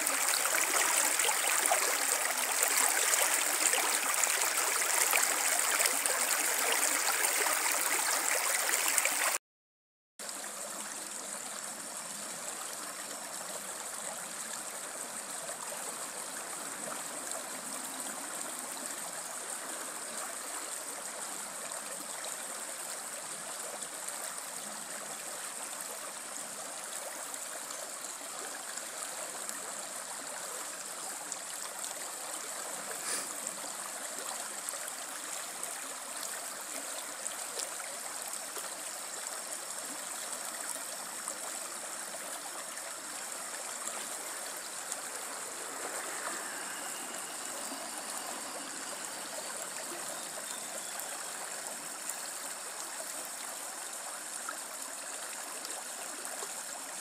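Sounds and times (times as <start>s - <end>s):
river rushing over rocks: 43.6s - 50.4s.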